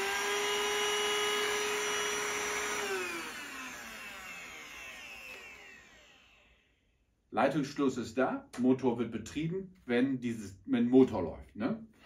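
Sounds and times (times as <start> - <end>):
vacuum motor whining: 0.0 - 6.6
motor winding down: 0.0 - 6.8.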